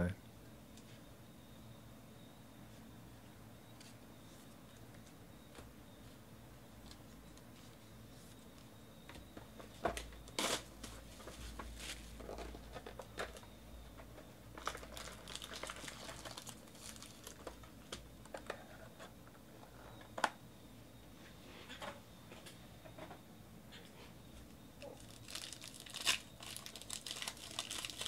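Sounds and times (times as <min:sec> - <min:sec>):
foil card packs crinkling: 0:14.6 - 0:17.8, 0:24.8 - 0:28.0.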